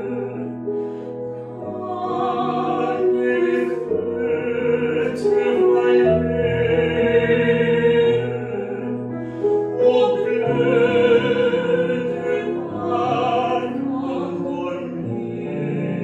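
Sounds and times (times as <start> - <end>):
piano accompaniment: 0.0 - 16.0
man singing operatically: 1.8 - 7.1, 9.8 - 15.9.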